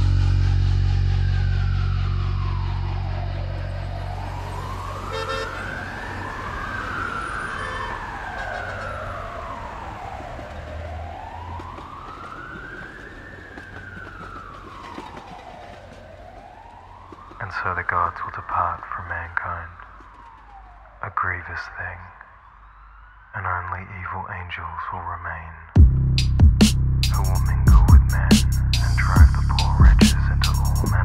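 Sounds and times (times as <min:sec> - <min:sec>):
low steady drone: 0:00.0 - 0:06.0
sirens wailing: 0:00.0 - 0:23.8, 0:27.1 - 0:31.0.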